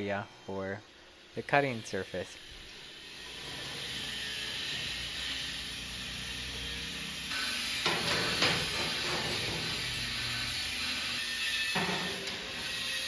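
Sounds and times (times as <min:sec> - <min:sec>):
steady hiss: 0:00.0 - 0:13.0
sharp metal knocks: 0:07.8 - 0:09.8, 0:11.7 - 0:12.5.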